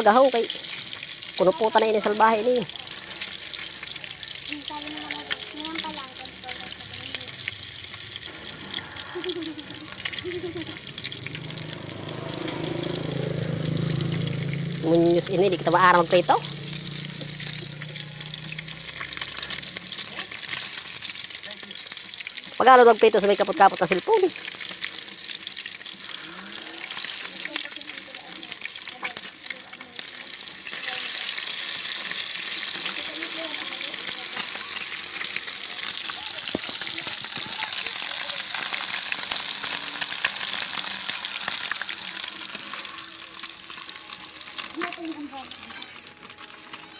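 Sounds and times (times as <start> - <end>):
fish sizzling in oil: 0.0 - 46.9
low hum: 6.7 - 20.4.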